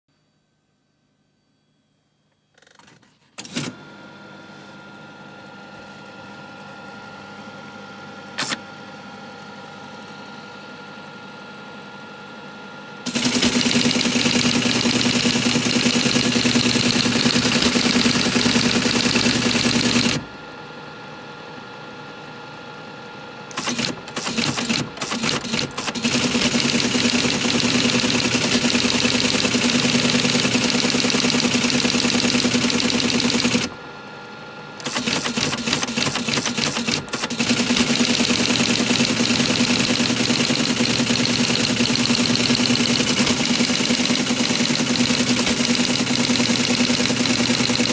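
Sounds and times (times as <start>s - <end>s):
teletype motor humming: 13.1s - 20.3s, 23.5s - 33.8s, 34.8s - 47.9s
teletype printing clatter: 13.1s - 20.3s, 23.5s - 33.8s, 34.8s - 47.9s
teletype click: 23.5s - 28.8s, 34.8s - 38.8s.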